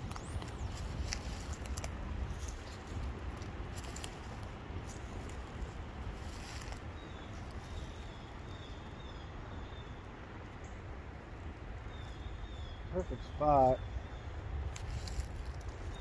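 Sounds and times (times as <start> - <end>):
twig snaps: 0.0 - 2.7, 14.7 - 15.7
footsteps through dry leaves: 0.0 - 8.4, 14.6 - 16.0.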